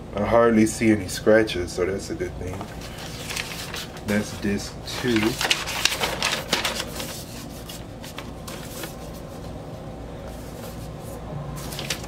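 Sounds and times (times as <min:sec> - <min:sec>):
records and paper sleeves rustling: 0:02.4 - 0:12.0.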